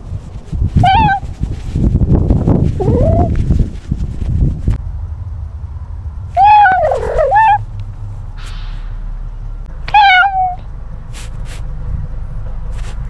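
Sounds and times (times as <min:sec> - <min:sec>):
low wind rumble: 0:00.0 - 0:13.0
cat meowing: 0:00.8 - 0:01.2, 0:06.4 - 0:07.6, 0:09.9 - 0:10.7.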